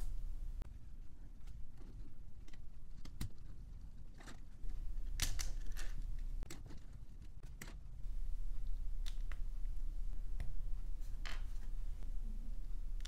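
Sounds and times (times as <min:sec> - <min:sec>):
plastic parts clicking and snapping: 0:05.1 - 0:07.9.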